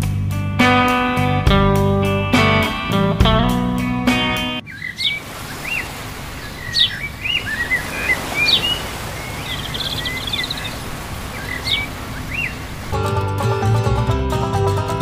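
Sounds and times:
birds chirping: 0:04.5 - 0:13.0
steady background noise: 0:04.6 - 0:13.0.

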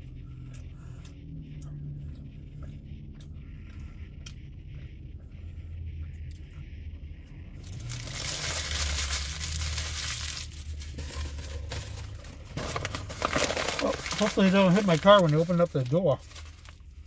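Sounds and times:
paper wrapper crumpling: 0:07.6 - 0:16.9.

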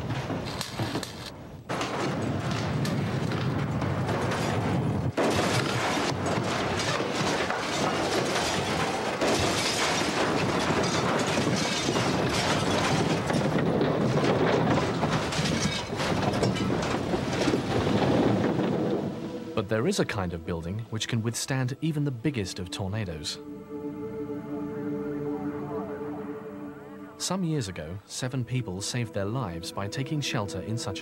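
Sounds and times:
tornado wind rushing: 0:00.0 - 0:20.3
debris knocking and crashing: 0:00.0 - 0:20.8.

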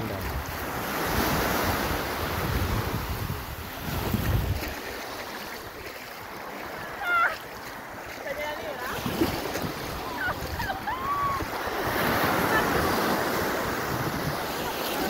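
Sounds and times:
wind buffeting microphone: 0:00.0 - 0:05.0, 0:08.9 - 0:15.0
small waves washing on shore: 0:00.0 - 0:15.0.

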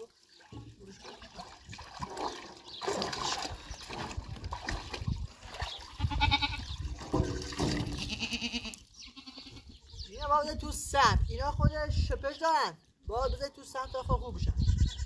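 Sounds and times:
liquid splashing in a trough: 0:00.0 - 0:08.2
goat bleating: 0:06.0 - 0:06.8, 0:07.9 - 0:10.1, 0:14.5 - 0:15.0.

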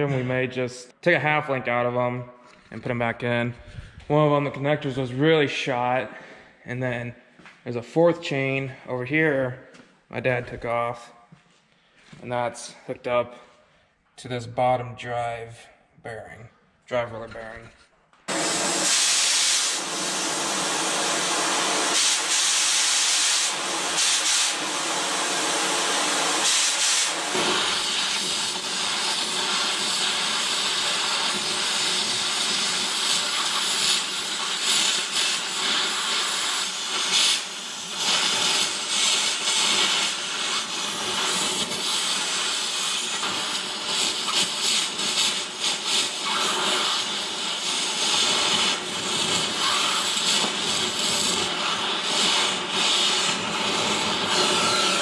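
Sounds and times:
gas torch hissing: 0:18.3 - 0:55.0.

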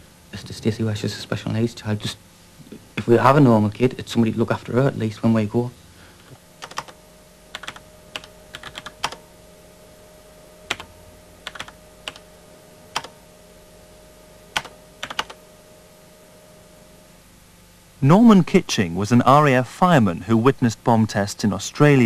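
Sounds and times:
faint steady hum: 0:00.0 - 0:22.0
clicky keyboard keystrokes: 0:06.6 - 0:09.2, 0:10.7 - 0:12.3, 0:14.6 - 0:15.4.

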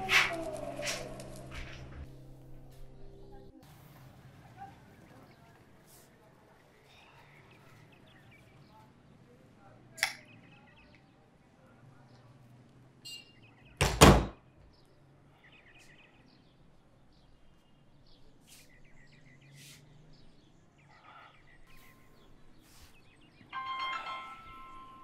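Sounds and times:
door slamming shut: 0:13.8 - 0:14.4.

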